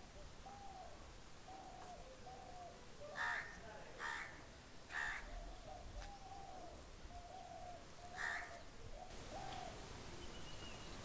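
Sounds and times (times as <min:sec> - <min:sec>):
crow cawing: 0:03.2 - 0:05.3, 0:08.2 - 0:08.6.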